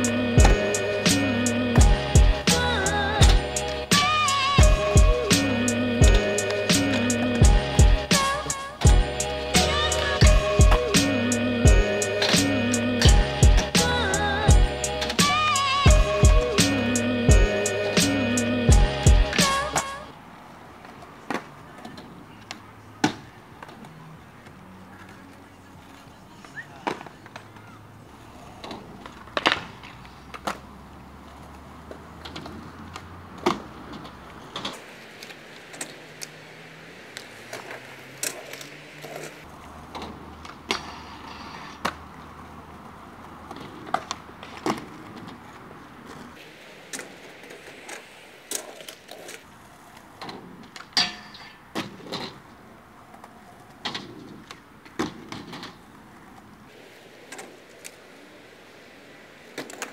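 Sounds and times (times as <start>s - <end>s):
skateboard wheels rolling on concrete: 0.0s - 59.9s
skateboard clacks on ramps: 53.1s - 56.4s.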